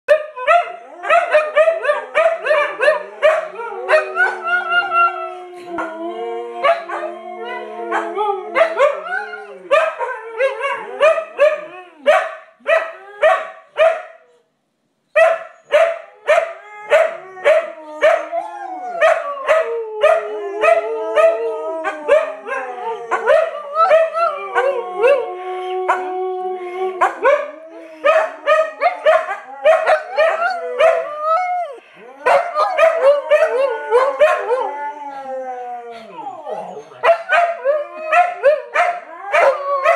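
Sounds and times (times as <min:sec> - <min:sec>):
dogs barking and yipping: 0:00.1 - 0:05.0, 0:07.9 - 0:14.1, 0:15.2 - 0:18.4, 0:27.0 - 0:34.8, 0:36.5 - 0:39.9
dogs howling: 0:00.6 - 0:12.1, 0:16.2 - 0:39.9.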